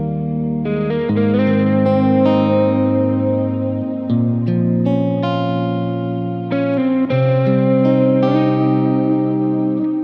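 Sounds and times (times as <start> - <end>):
ambient meditation music: 0.0 - 10.0.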